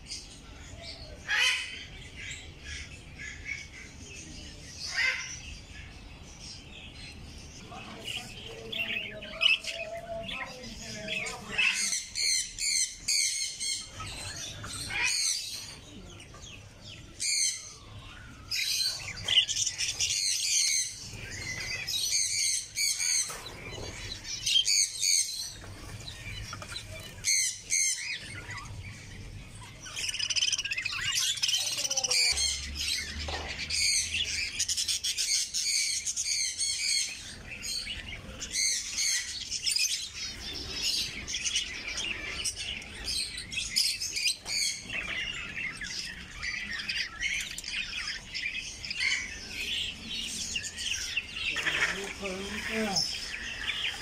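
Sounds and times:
budgerigars chattering: 0:04.8 - 0:54.0
finches chirping: 0:17.2 - 0:33.1, 0:33.8 - 0:54.0.

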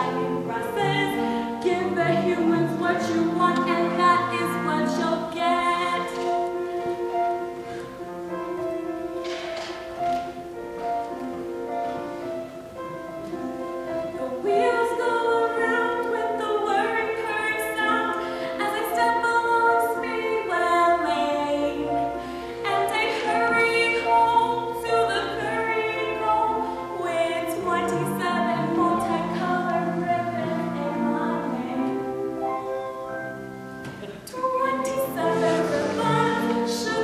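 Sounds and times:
choir singing: 0:34.0 - 0:37.0.

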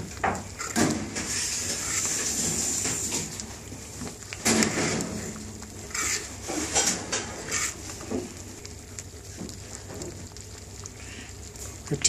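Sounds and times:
ladle scraping saucepan: 0:00.5 - 0:03.4, 0:04.4 - 0:08.4.

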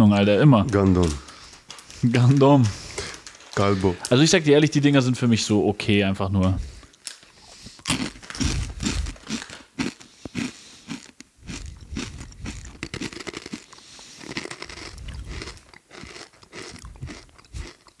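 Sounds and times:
crunchy snack being chewed: 0:06.9 - 0:18.0.

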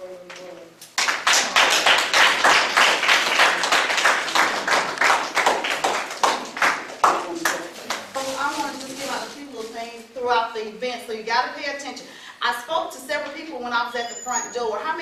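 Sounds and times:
group of people clapping: 0:01.0 - 0:08.2.

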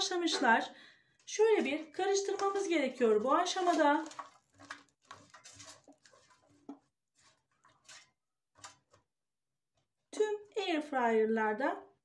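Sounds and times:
spatula stirring potato sticks: 0:01.3 - 0:09.1.

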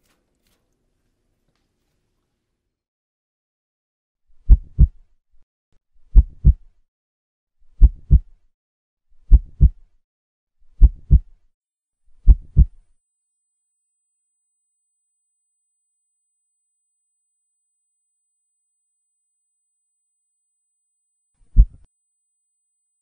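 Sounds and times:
heartbeat thuds: 0:04.5 - 0:05.0, 0:06.1 - 0:06.6, 0:07.8 - 0:08.3, 0:09.3 - 0:09.8, 0:10.8 - 0:11.3, 0:12.2 - 0:12.8, 0:21.6 - 0:21.8.

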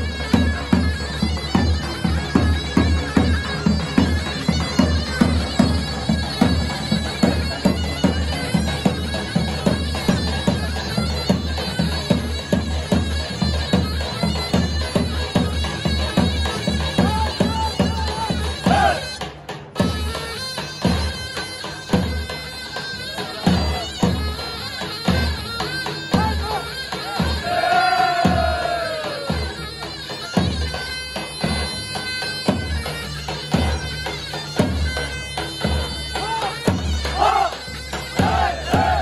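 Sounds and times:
reedy wind instrument melody: 0:00.0 - 0:39.0
men shouting together: 0:18.7 - 0:19.1, 0:27.0 - 0:29.4, 0:37.2 - 0:37.6, 0:38.2 - 0:39.0
heavy drum beat: 0:27.1 - 0:29.5, 0:38.2 - 0:39.0.

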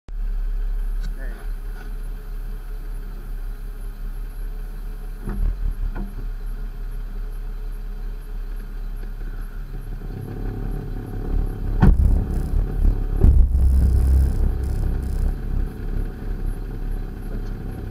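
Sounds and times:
pickup engine idling: 0:00.2 - 0:17.9
knocks: 0:11.8 - 0:15.4.

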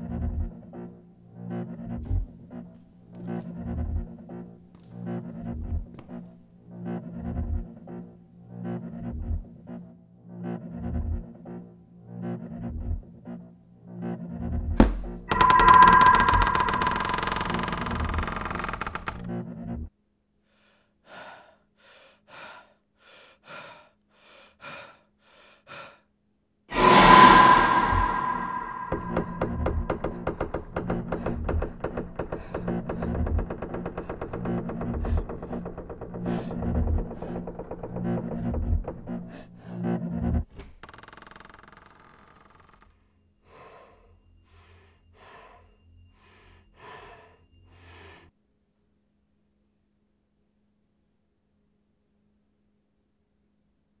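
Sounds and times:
horror stinger with ringing tone: 0:15.3 - 0:18.5, 0:26.7 - 0:30.2
person breathing heavily: 0:20.5 - 0:26.1, 0:43.4 - 0:48.3.

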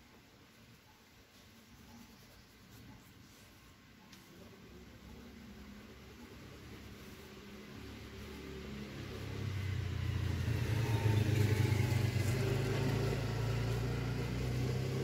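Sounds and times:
vehicle engine running: 0:06.0 - 0:15.0.

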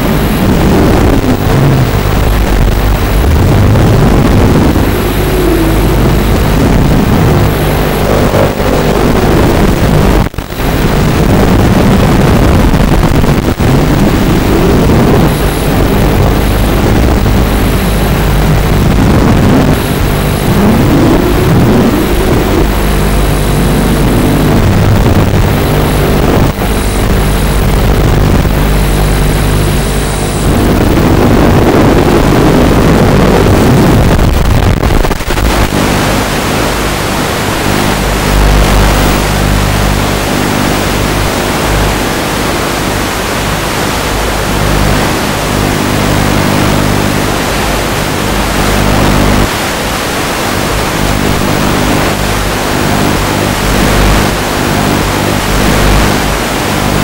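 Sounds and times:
quadcopter motors whining: 0:02.8 - 0:10.8, 0:17.5 - 0:24.6.

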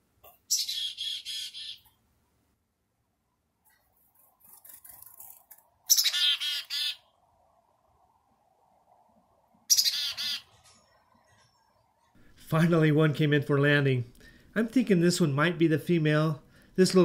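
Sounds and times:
chickadee harsh chattering calls: 0:00.5 - 0:01.8, 0:04.6 - 0:07.1, 0:09.7 - 0:10.5.

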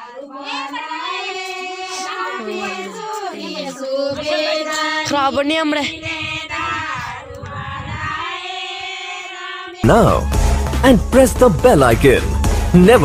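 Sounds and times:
women singing folk song in chorus: 0:00.0 - 0:09.8.

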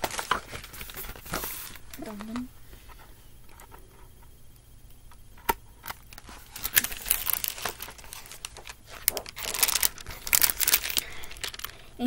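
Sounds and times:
paper pages rustling: 0:00.0 - 0:03.6, 0:05.9 - 0:11.9.

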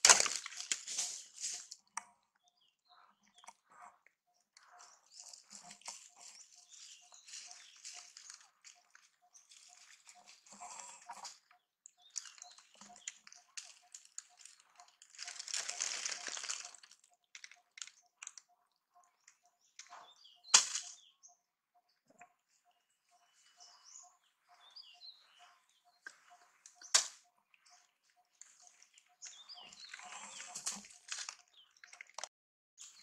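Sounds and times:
dry leaves rustling and crackling: 0:00.0 - 0:01.8, 0:05.2 - 0:08.9, 0:12.2 - 0:17.0.

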